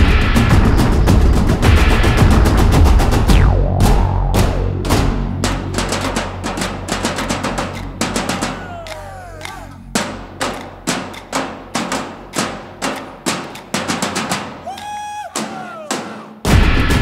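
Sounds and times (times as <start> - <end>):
background music with drum beat: 0.0 - 17.0.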